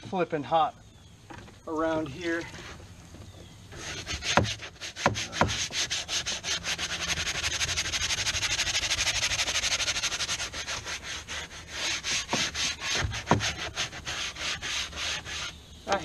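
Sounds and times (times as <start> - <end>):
scrub brush scrubbing: 3.8 - 15.5.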